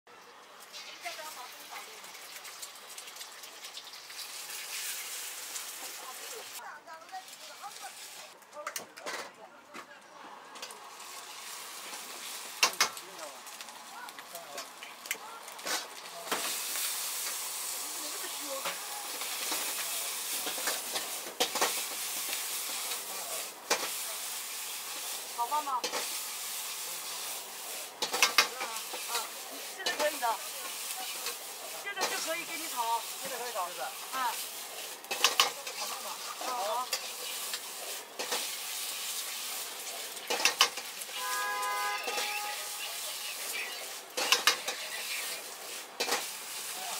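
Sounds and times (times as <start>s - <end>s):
food sizzling in a wok: 0.1s - 8.4s, 10.4s - 46.9s
metal ladle scraping a wok: 18.6s - 32.3s, 34.0s - 46.7s.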